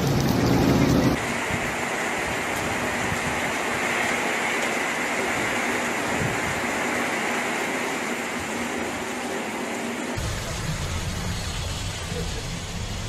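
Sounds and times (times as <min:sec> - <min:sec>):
heavy rain: 0:00.0 - 0:13.0
strong wind: 0:00.2 - 0:09.0.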